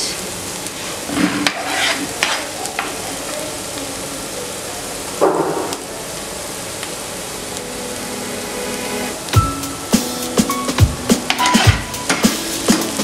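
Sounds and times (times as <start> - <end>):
onions sizzling in oil: 0.0 - 13.0
spatula scraping pan: 1.0 - 2.6, 11.2 - 13.0.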